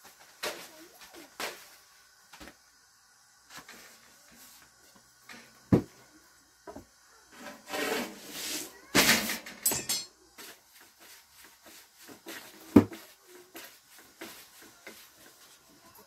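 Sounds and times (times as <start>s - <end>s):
rolling pin rolling over dough: 6.6s - 8.8s, 10.4s - 16.0s.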